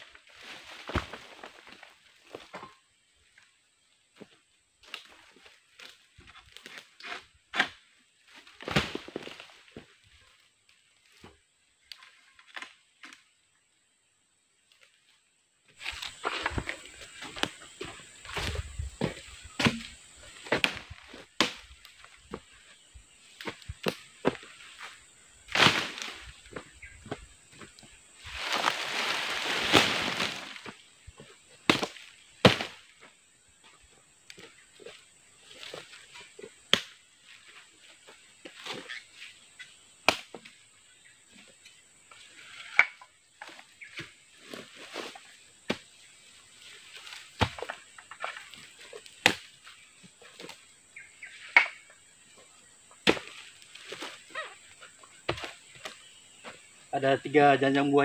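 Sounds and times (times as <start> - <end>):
rustling dry palm fronds: 0.0 - 2.5, 15.7 - 57.0
harvesting tool chopping fruit bunches: 15.8 - 22.5, 23.3 - 27.2, 31.6 - 33.0, 35.5 - 37.2, 39.7 - 40.6, 42.6 - 46.1, 46.8 - 50.7, 52.9 - 56.6
machete chops: 31.7 - 32.8, 53.0 - 54.0.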